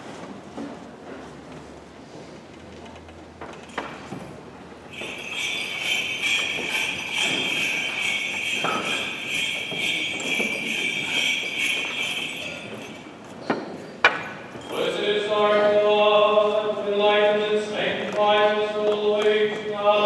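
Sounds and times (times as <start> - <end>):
small bells jingling: 3.6 - 15.5.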